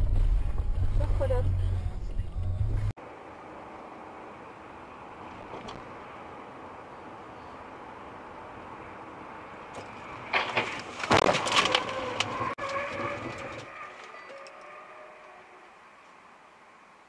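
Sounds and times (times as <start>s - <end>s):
car road noise: 0.0s - 17.0s
car crash bangs and crunches: 10.3s - 13.7s.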